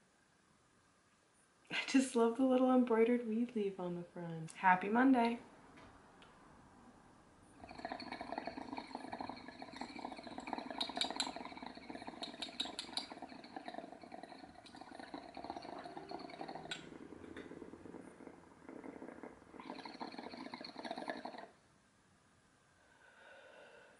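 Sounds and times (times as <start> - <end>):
water bubbling in glass pipe: 7.6 - 21.6
glassy clicks: 7.7 - 17.5.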